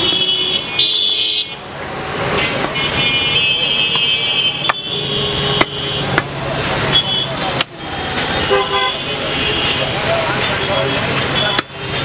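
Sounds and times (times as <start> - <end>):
vehicle horns honking: 0.0 - 1.6, 2.7 - 6.2, 6.9 - 7.4, 8.4 - 11.9
street traffic: 0.0 - 12.0.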